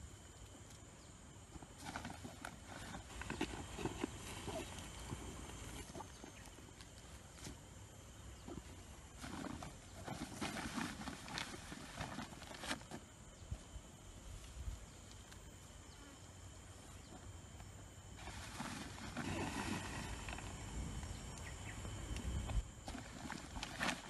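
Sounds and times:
rustling and scuffing in soil: 1.6s - 16.0s, 18.1s - 20.6s.

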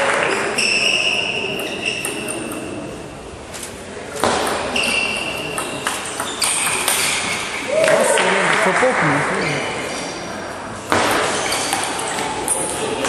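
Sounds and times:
shoes squeaking on floor: 0.3s - 2.9s, 3.5s - 7.7s, 11.2s - 13.0s.

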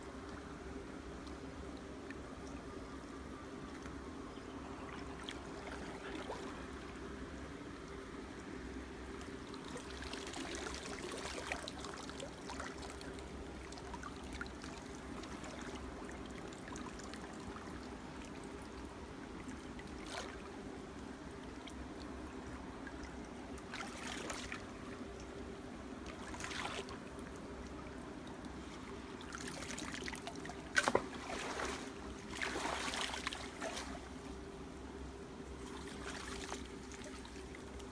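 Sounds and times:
steady low hum: 0.0s - 37.9s
water sloshing around wading legs: 4.6s - 6.8s, 19.4s - 20.7s, 23.0s - 25.3s, 26.0s - 27.7s, 28.5s - 34.4s, 35.6s - 37.9s.

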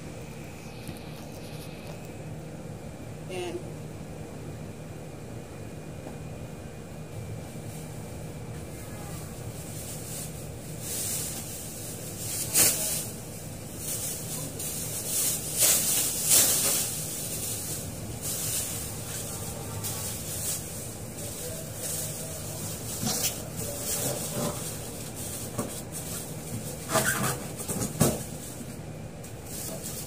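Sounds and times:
plastic bag rustling: 8.8s - 30.0s.

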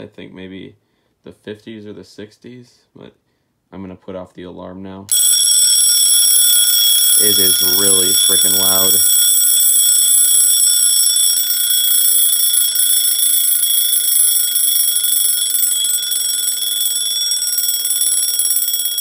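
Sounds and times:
alarm clock ringing: 5.1s - 19.0s.

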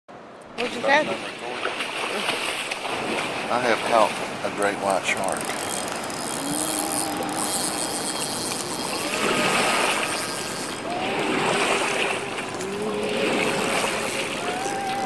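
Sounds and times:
sea water and surf rushing: 0.1s - 15.0s
faint wavering tones: 5.6s - 15.0s.

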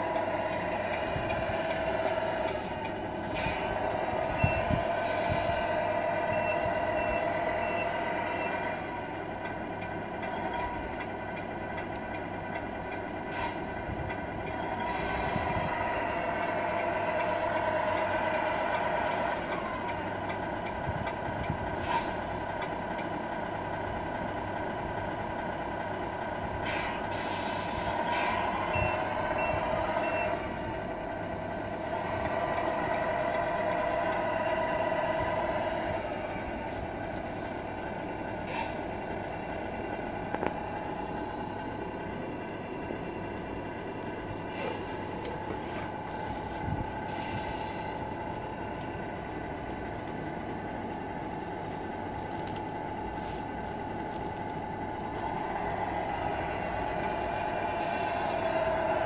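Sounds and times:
diesel truck engine drone: 0.0s - 59.0s
air-brake hisses: 5.0s - 5.8s, 13.3s - 13.8s, 26.6s - 28.6s, 37.0s - 39.0s, 44.4s - 48.3s, 57.8s - 58.7s
reversing beeps: 6.2s - 8.6s, 28.7s - 30.5s.

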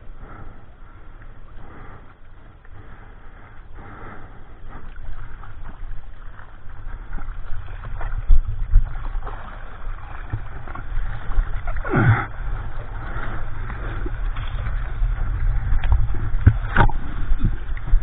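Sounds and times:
seawater sloshing and splashing: 4.5s - 18.0s
wind buffeting microphone: 5.0s - 18.0s
water gurgle sweeping downward: 7.2s - 18.0s.

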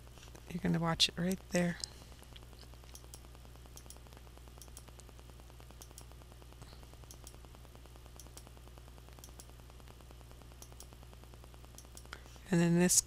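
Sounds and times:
low hum and hiss: 0.0s - 13.0s
fine rapid ticking: 1.4s - 12.2s
faint high clicks: 5.8s - 6.1s, 9.2s - 9.6s.

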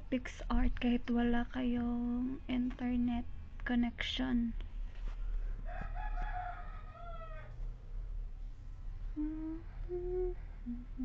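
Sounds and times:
rooster crowing: 5.6s - 7.6s.

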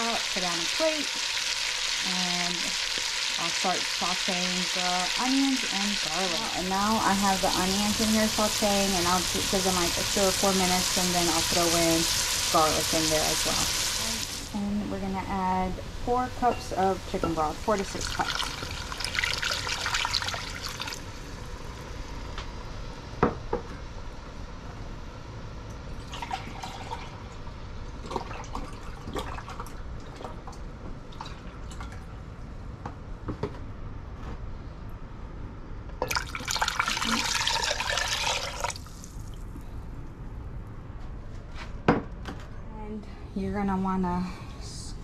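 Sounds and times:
broth splashing into pot: 0.0s - 14.5s, 16.6s - 21.1s, 36.1s - 39.5s
low hiss from pot: 0.0s - 21.8s.

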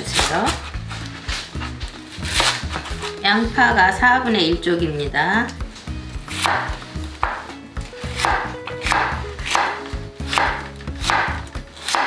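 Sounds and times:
knife slicing onion: 0.0s - 3.6s, 5.7s - 12.0s
knife tapping wooden board: 6.4s - 7.5s, 8.2s - 12.0s.

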